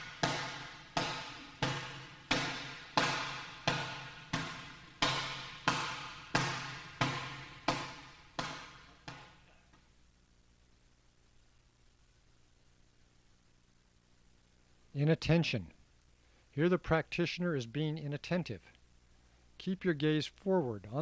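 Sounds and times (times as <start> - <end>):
hand slapping training bag: 0.0 - 9.6.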